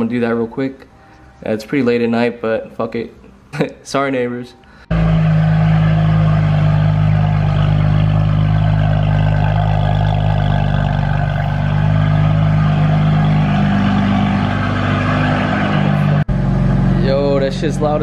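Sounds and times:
car engine idling: 4.9 - 18.0.

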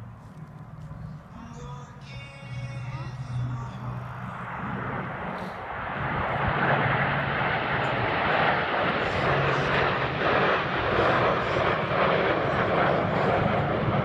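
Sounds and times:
jet engines flying past: 3.2 - 14.0.

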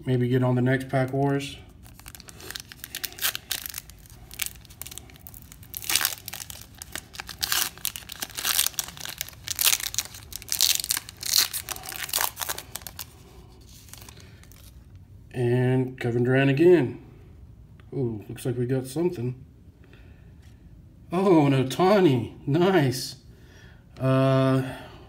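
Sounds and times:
foil pack crinkling and ripping: 1.7 - 14.8.

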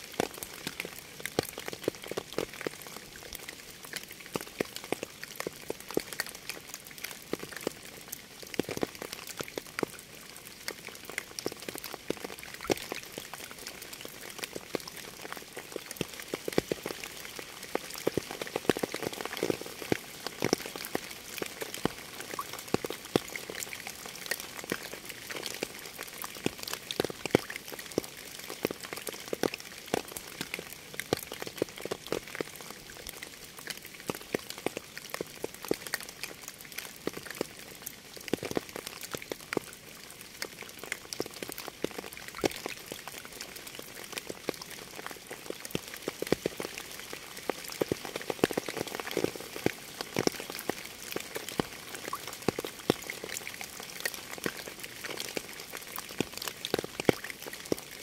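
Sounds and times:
steady rain: 0.0 - 58.0.

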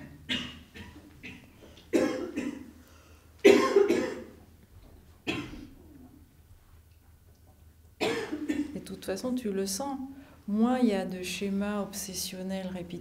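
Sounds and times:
person coughing: 0.3 - 2.8, 3.4 - 4.4, 5.3 - 5.8, 8.0 - 8.8.

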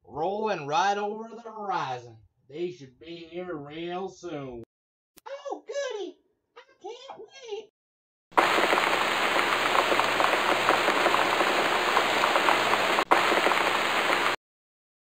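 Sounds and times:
steady rain pouring: 8.4 - 14.4.

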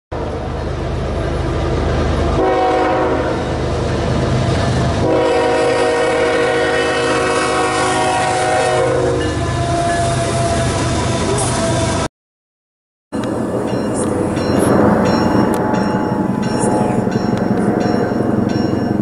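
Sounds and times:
locomotive horn blasts: 2.4 - 3.5, 5.0 - 12.0.

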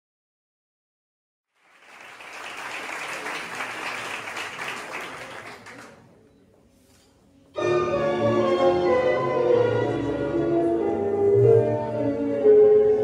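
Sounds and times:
audience applauding: 1.6 - 6.2.

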